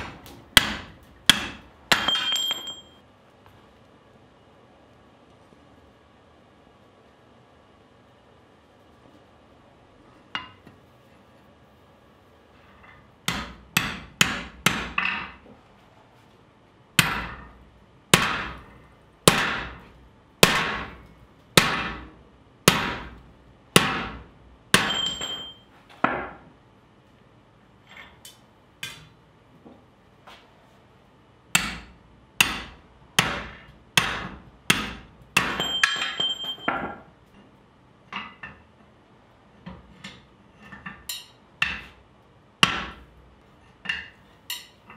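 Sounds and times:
metallic ring: 0:02.0 - 0:03.0, 0:24.8 - 0:25.7, 0:35.6 - 0:36.9.

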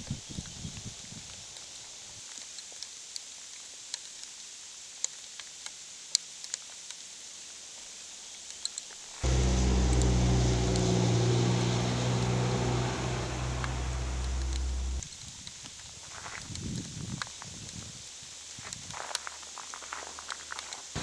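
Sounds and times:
low engine hum: 0:09.2 - 0:15.0.

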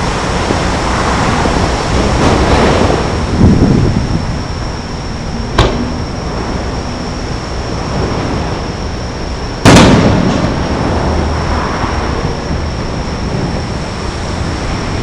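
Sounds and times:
firework shells exploding: 0:05.5 - 0:06.4, 0:09.6 - 0:11.1.

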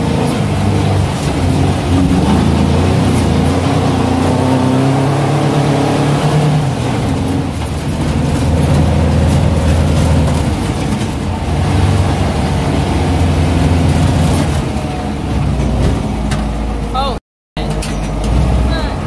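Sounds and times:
car engine running: 0:00.0 - 0:19.0
gravel road noise: 0:00.0 - 0:19.0
car body rattles: 0:06.5 - 0:16.8.

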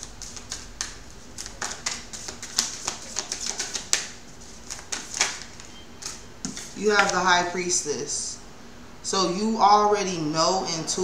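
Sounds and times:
cards being shuffled: 0:00.0 - 0:07.3.

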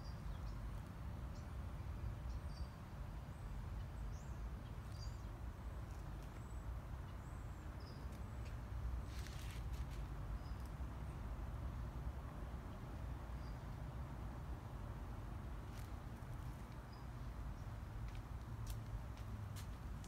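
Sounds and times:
small birds chirping: 0:01.3 - 0:10.8.

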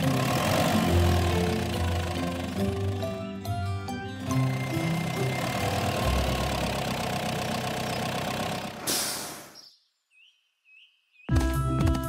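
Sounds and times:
cartoon truck engine rumble: 0:00.0 - 0:09.6
short hiss: 0:08.8 - 0:09.6.

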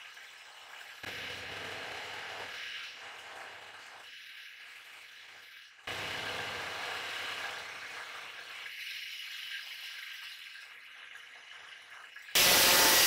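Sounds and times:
knife on spinning buffing wheel: 0:12.4 - 0:13.0.

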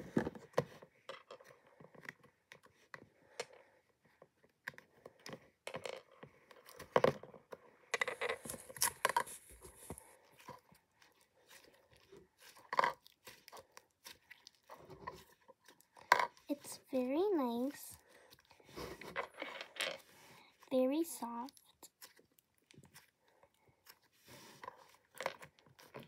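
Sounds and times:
slime clicking and crackling: 0:10.4 - 0:16.6.

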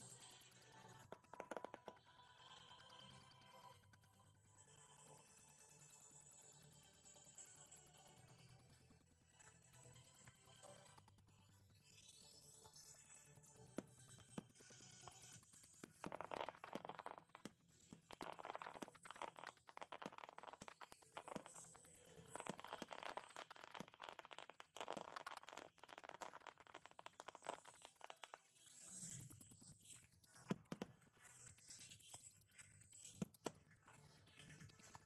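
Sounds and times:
fireworks popping: 0:15.9 - 0:28.4
fireworks crackle: 0:16.0 - 0:28.4.

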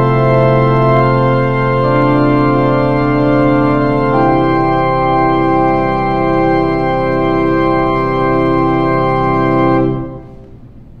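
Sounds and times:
organ chord: 0:00.0 - 0:11.0
room echo: 0:00.0 - 0:11.0.

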